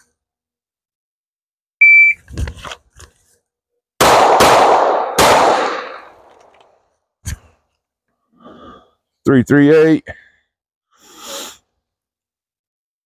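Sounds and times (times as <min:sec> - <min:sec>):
shot timer beep: 0:01.8 - 0:02.2
pistol shots with echo: 0:04.0 - 0:06.3.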